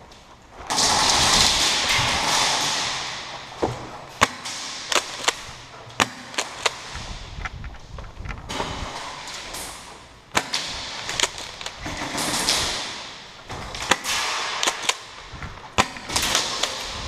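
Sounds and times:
airsoft gunshots: 10.3s - 17.0s.

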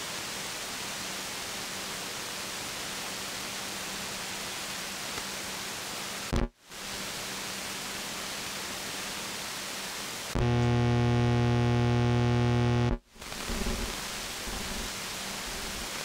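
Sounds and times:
low buzzing radio tone: 6.3s - 6.5s, 10.4s - 16.0s
radio static hiss: 6.3s - 7.0s, 10.2s - 16.0s.

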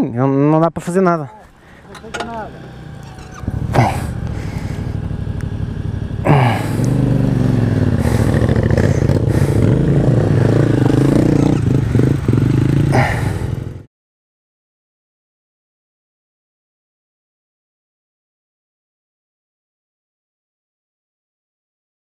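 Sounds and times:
motorcycle engine revving: 1.3s - 13.9s.

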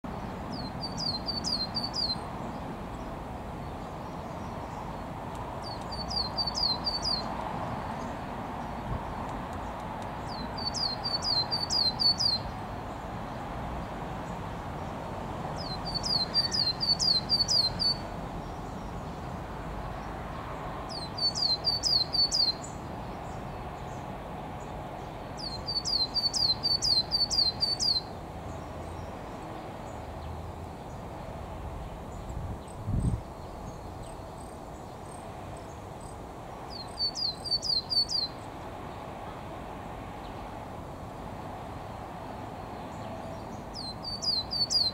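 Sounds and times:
coal tit singing: 5.6s - 7.3s, 15.6s - 18.0s.

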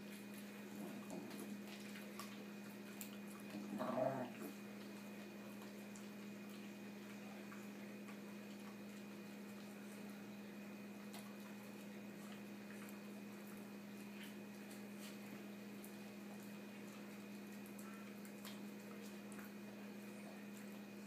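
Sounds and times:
dog chewing with wet mouth sounds: 0.0s - 21.0s
dog growling low: 0.7s - 1.4s, 3.5s - 4.6s.

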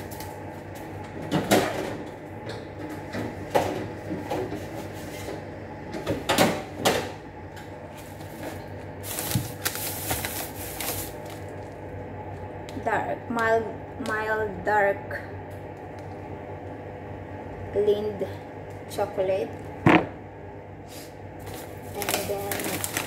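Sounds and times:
plastic bags rustling: 8.0s - 11.8s, 21.4s - 23.0s.

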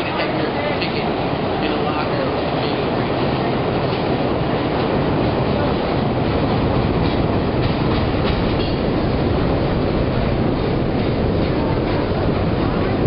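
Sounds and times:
steel train wheels rumbling: 0.0s - 13.0s
wheels clacking over rail joints: 1.0s - 13.0s.

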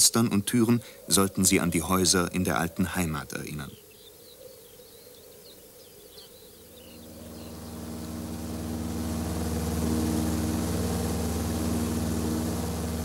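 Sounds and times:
propeller aircraft engines droning: 6.9s - 13.0s.

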